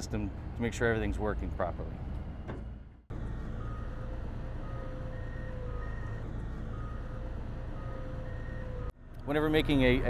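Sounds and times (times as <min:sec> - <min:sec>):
heavy equipment engine rumbling: 0:00.0 - 0:10.0
reversing alarm beeping: 0:03.1 - 0:08.9.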